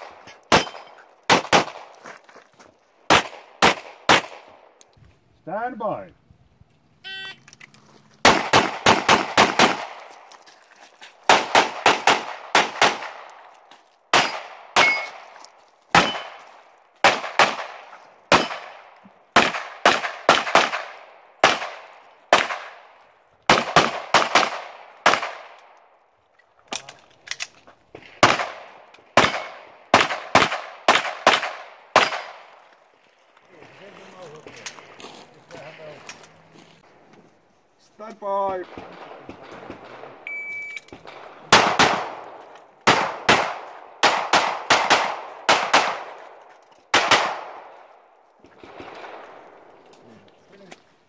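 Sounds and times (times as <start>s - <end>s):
pistol rapid fire: 0.0s - 1.9s, 3.1s - 4.5s, 8.2s - 10.0s, 11.3s - 13.3s, 14.1s - 15.1s, 17.0s - 22.8s, 23.5s - 25.5s, 28.2s - 32.4s, 41.0s - 42.2s, 42.8s - 46.2s, 46.9s - 47.7s.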